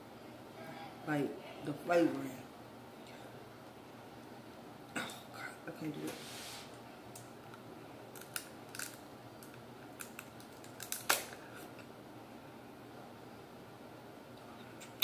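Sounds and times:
crab shell cracking: 8.1s - 11.4s.

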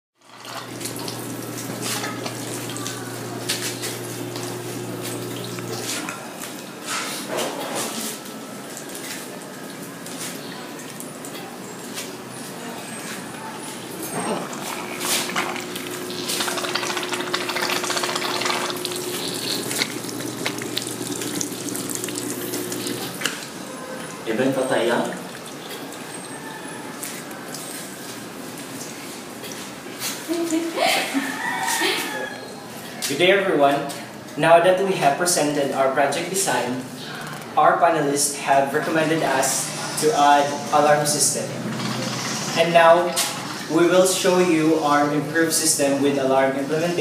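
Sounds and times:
water running and splashing: 0.2s - 6.7s, 8.1s - 30.7s, 38.8s - 44.6s
water pump humming: 0.2s - 6.8s, 8.1s - 31.2s, 34.7s - 47.0s
steady hum: 0.6s - 6.2s.

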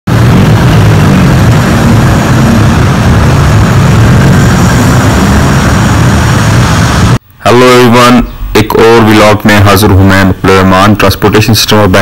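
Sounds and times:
auto-rickshaw engine running: 0.1s - 7.2s.

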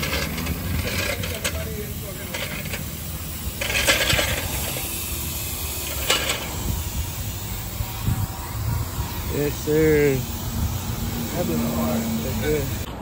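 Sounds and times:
compressed air hissing: 0.0s - 12.9s
low rumble: 2.7s - 9.4s.

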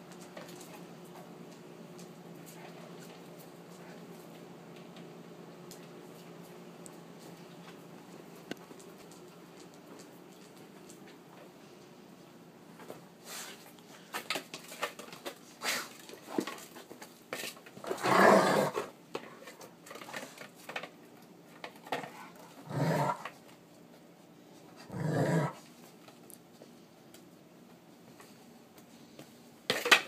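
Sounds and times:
dogs growling in play: 17.8s - 18.9s, 22.0s - 23.4s, 24.8s - 25.7s.

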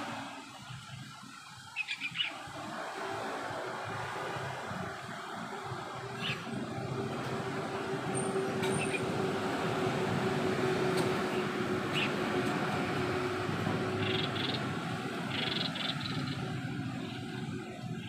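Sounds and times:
traffic rumble: 0.0s - 18.0s
birds chirping: 1.6s - 2.5s, 11.2s - 12.2s, 13.9s - 18.0s.

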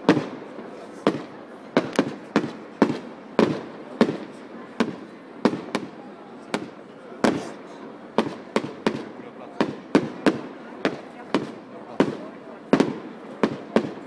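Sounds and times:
fireworks bursting with sharp bangs: 0.0s - 14.0s.

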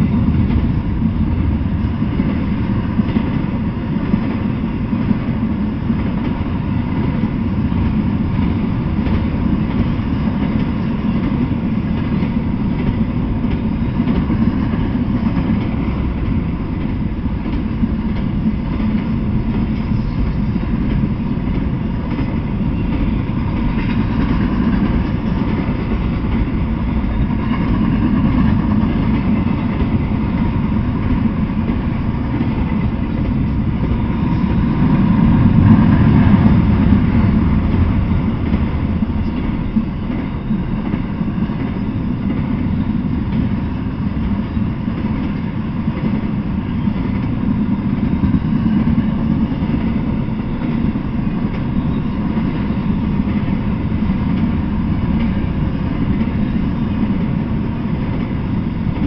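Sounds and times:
freight train wheels rumbling on rails: 0.0s - 59.0s.

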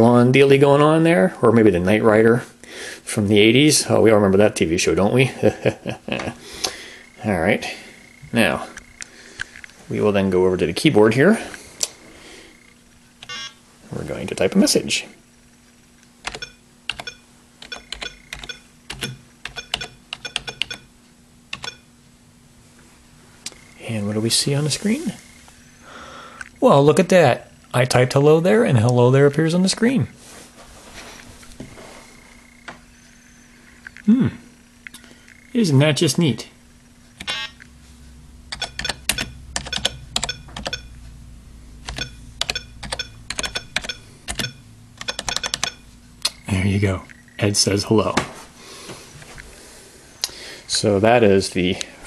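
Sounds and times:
steady low hum: 0.0s - 52.0s
typing on computer keyboard: 16.2s - 20.9s, 21.5s - 21.8s, 38.5s - 40.9s, 41.9s - 45.8s.

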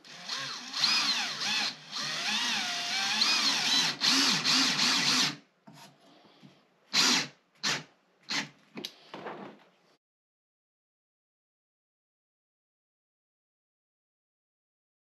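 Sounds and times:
cordless drill driving screw: 0.0s - 5.4s, 6.9s - 8.5s.

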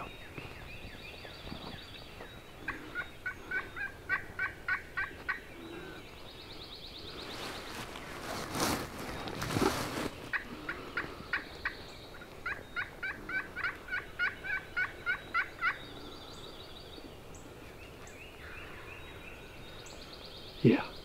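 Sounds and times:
faint songbird chirps: 0.0s - 21.0s
turkey yelping: 2.6s - 5.4s, 12.4s - 15.8s.

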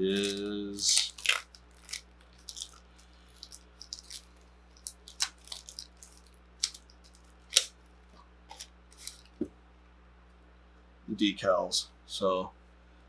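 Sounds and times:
packaging crinkling: 0.0s - 9.5s.

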